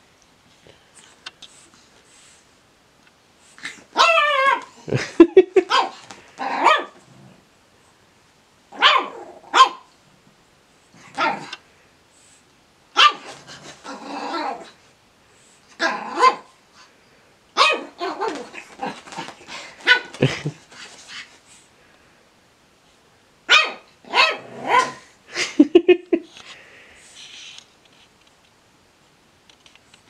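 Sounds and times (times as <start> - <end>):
puppy play barks: 3.9 - 4.7, 5.6 - 7.0, 8.7 - 9.9, 11.1 - 11.6, 12.9 - 14.7, 15.8 - 16.5, 17.6 - 20.2, 23.5 - 25.1.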